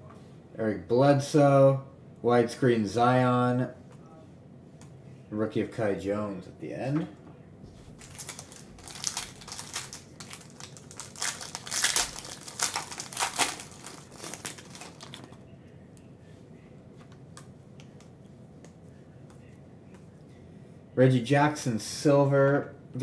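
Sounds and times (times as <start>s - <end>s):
foil wrapper tearing and crinkling: 8.0s - 15.3s.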